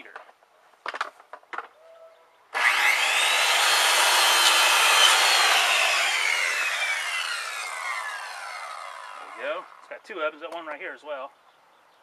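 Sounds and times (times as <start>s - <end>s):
circular saw cutting wood: 2.6s - 10.0s.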